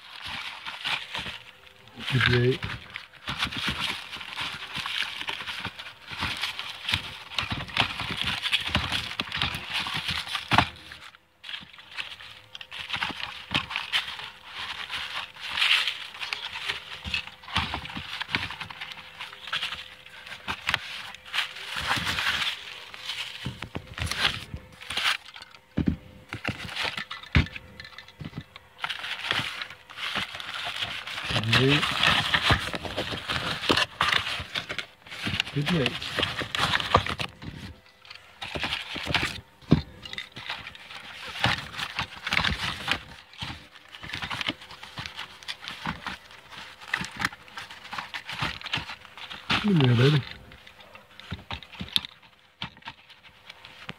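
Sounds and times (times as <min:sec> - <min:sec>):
cardboard flaps scraping: 0:00.0 - 0:53.9
packing paper crinkling: 0:00.0 - 0:53.9.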